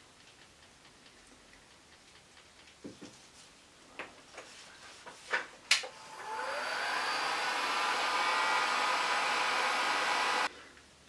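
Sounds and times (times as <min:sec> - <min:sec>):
heat gun fan blowing: 0:05.7 - 0:10.5.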